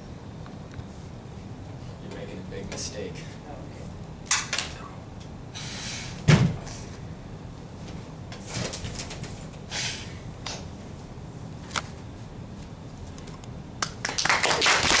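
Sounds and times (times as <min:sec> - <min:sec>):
audience applause: 0:13.8 - 0:15.0.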